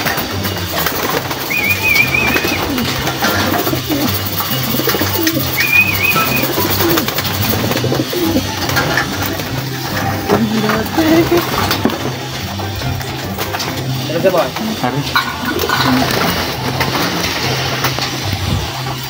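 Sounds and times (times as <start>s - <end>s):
pigeons cooing: 0.0s - 19.0s
high warbling bird call: 1.4s - 8.5s.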